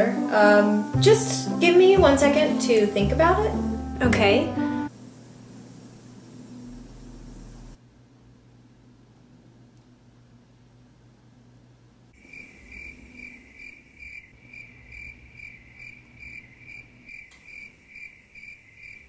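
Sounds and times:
faint room hum: 2.0 - 19.0
cricket chirping: 12.2 - 19.0.

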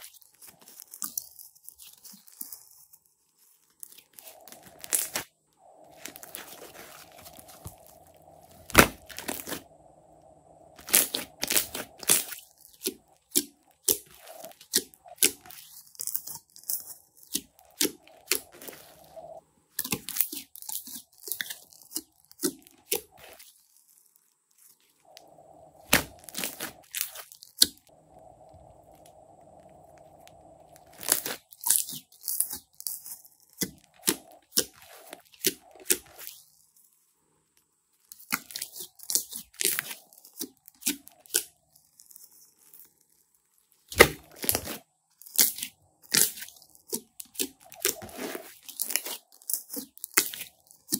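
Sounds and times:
slime crackling and popping: 0.0 - 9.7, 10.8 - 28.0, 28.8 - 36.5, 38.0 - 50.9.

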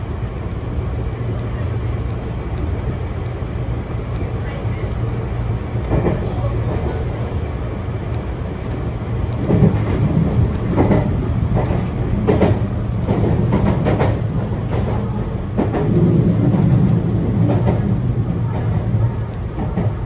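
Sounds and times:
train wheels rumbling on rail: 0.0 - 20.0
wheels clacking over rail joints: 9.2 - 20.0.

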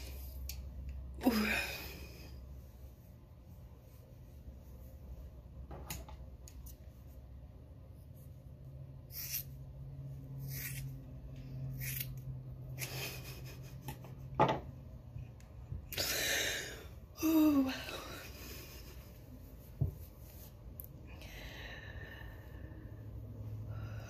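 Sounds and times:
scissors snipping hair: 11.7 - 12.9.

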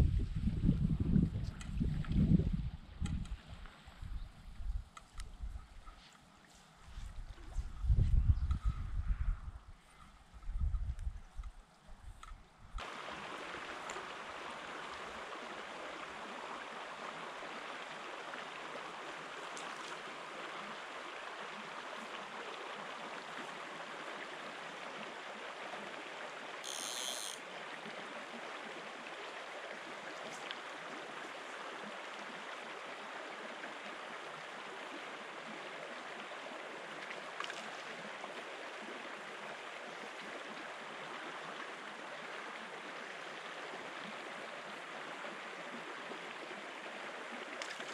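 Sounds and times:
river running over stones: 12.8 - 47.9.

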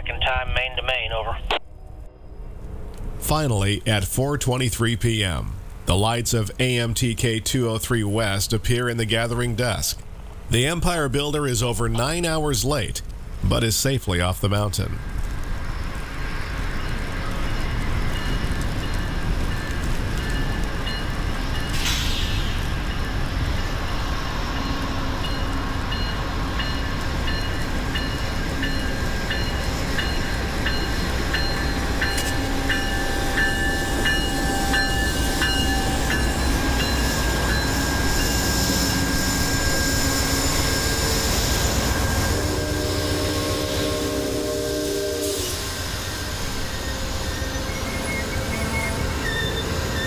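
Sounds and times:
diesel locomotive rumbling: 0.1 - 50.0
rushing hiss of passing train: 15.0 - 50.0
high ringing bell: 24.6 - 38.5.

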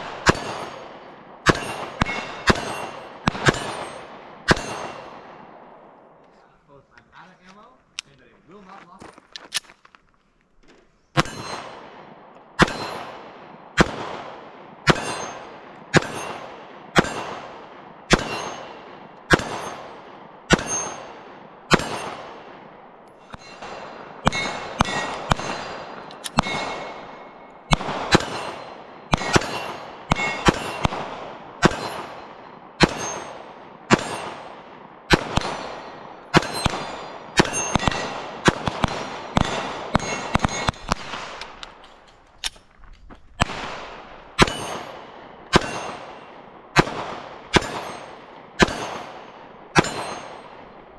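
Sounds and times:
steel target ringing: 0.0 - 0.8, 1.4 - 5.2, 11.2 - 11.8, 12.6 - 13.1, 14.9 - 17.5, 18.1 - 22.4, 23.1 - 38.2, 39.3 - 41.2, 44.4 - 46.3, 47.5 - 50.8
pistol shots: 0.0 - 6.0, 11.1 - 42.7, 43.3 - 50.9.

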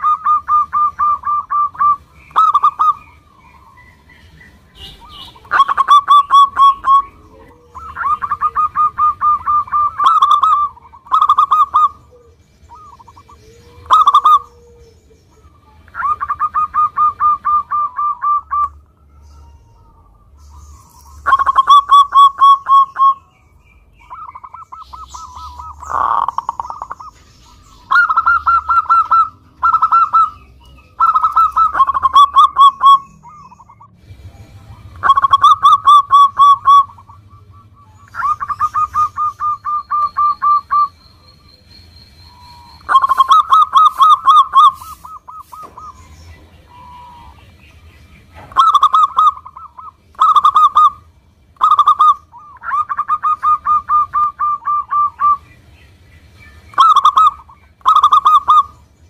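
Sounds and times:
dove cooing: 0.0 - 23.4, 24.0 - 41.4, 42.3 - 55.6, 56.7 - 58.9.

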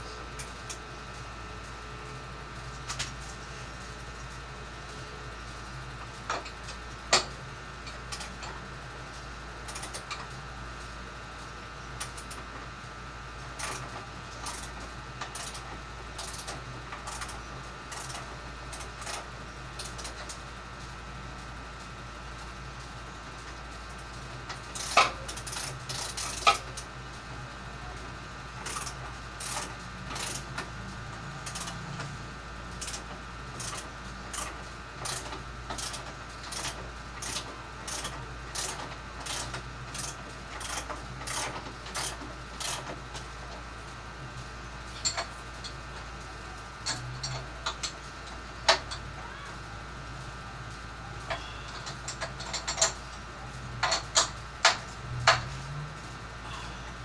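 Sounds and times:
ratchet wrench clicking: 16.2 - 16.5, 24.7 - 26.6, 28.6 - 30.4, 32.8 - 33.0, 33.6 - 42.8.

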